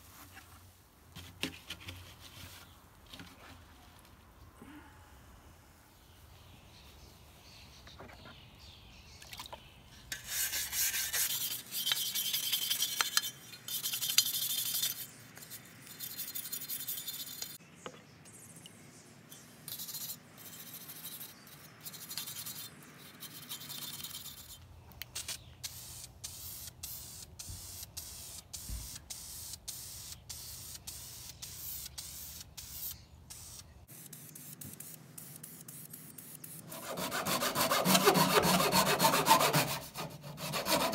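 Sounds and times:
wire brush scraping metal: 10.1s - 17.6s.

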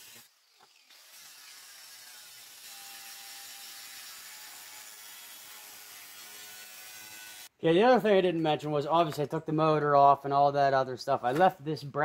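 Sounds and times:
angle grinder cutting metal: 0.0s - 7.5s.

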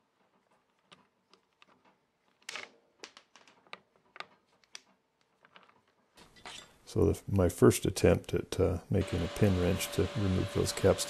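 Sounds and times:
faint metallic clicks and knocks: 0.1s - 6.8s.

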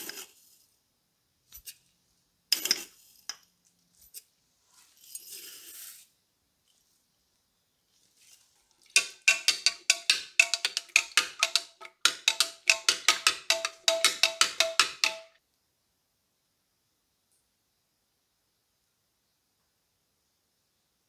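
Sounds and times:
spoon clinking in glass jar: 8.9s - 15.4s.

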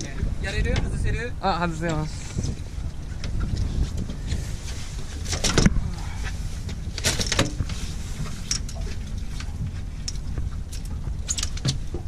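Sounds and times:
boat engine rumble: 0.0s - 12.0s
clicking and rattling of fish grip: 5.2s - 12.0s.

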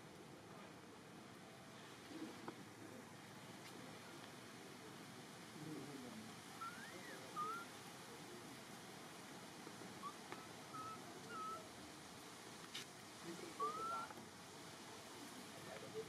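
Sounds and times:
infant monkey coo calls: 6.6s - 7.8s, 9.9s - 11.8s, 13.4s - 14.2s.

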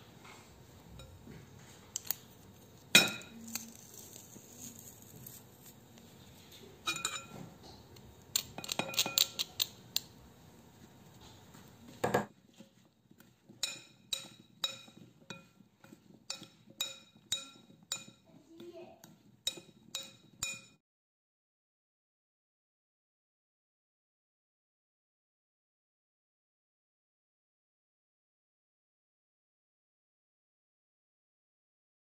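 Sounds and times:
metal spoon clinking glass bowl: 2.8s - 5.7s, 6.8s - 7.5s, 8.3s - 10.1s, 13.5s - 18.3s, 19.0s - 20.8s.

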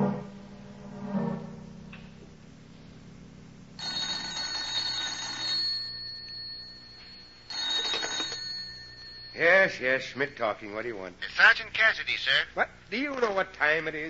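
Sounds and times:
old telephone bell ringing: 3.8s - 10.5s.

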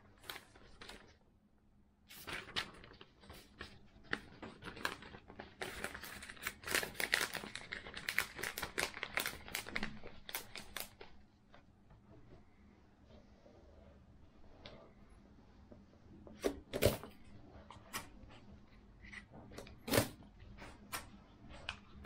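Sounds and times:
glossy paper crinkling: 2.1s - 11.6s.

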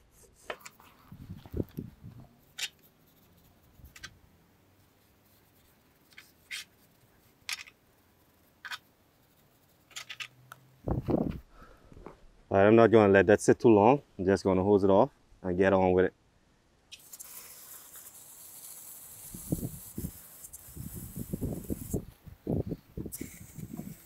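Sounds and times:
brush scratching on metal: 2.4s - 4.1s, 4.8s - 10.3s.

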